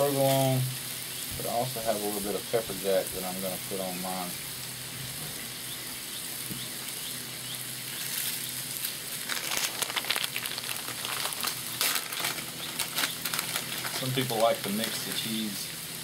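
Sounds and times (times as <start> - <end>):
food sizzling on a griddle: 0.0 - 16.0
sharp crackling: 5.7 - 16.0.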